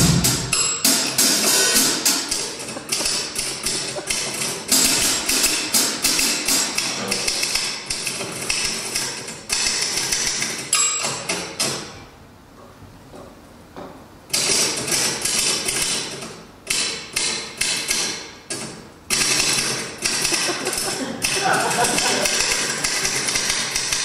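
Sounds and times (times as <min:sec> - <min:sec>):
drum kit and cymbal hits: 0:00.0 - 0:07.9, 0:19.2 - 0:24.0
typewriter keys struck: 0:14.3 - 0:24.0.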